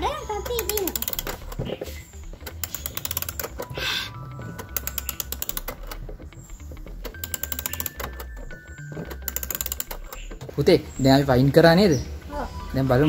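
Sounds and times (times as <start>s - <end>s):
clock winding ratchet clicks: 0.4s - 3.8s, 4.5s - 6.1s, 6.7s - 10.4s.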